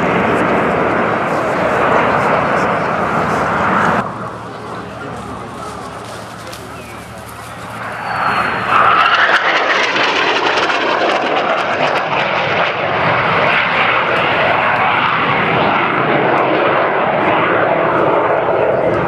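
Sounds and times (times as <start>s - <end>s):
fighter jet roar: 0.0s - 19.0s.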